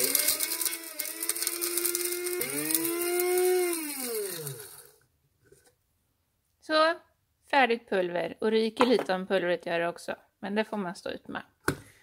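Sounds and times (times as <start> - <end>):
coffee grinder motor whining: 0.0 - 5.0.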